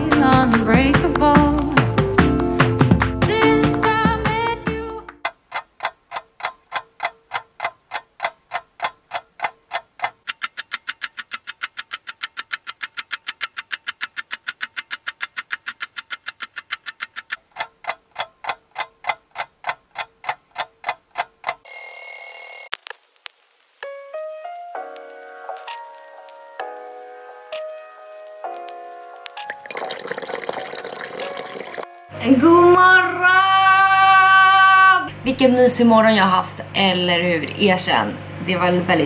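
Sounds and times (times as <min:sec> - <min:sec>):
clock ticking: 0:05.2 - 0:22.1
electronic alarm beep: 0:21.7 - 0:22.7.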